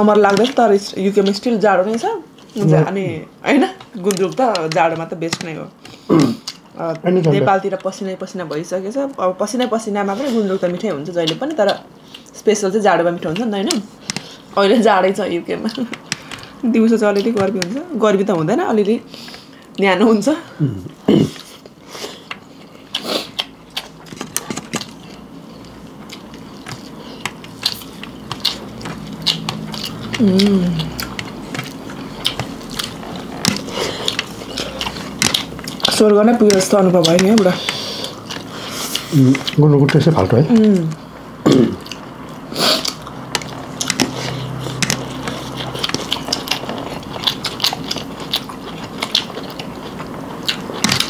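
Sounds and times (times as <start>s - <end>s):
chewing and crunching: 0.0s - 2.8s, 15.5s - 17.8s, 20.9s - 41.0s, 41.7s - 51.0s.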